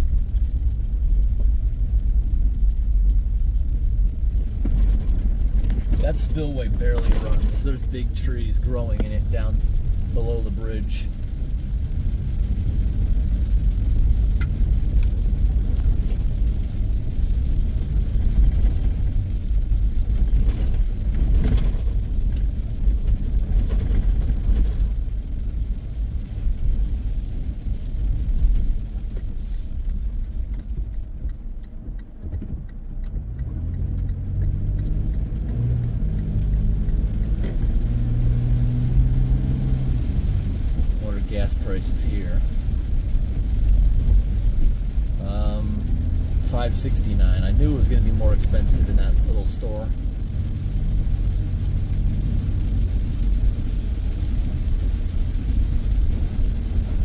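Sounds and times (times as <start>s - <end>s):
car engine rumble: 0.0s - 57.0s
tyre hiss on wet road: 29.3s - 29.9s.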